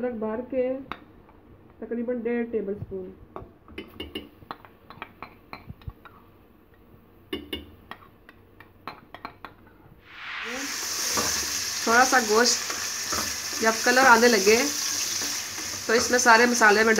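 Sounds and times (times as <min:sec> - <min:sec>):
frying sizzle: 0:10.0 - 0:16.9.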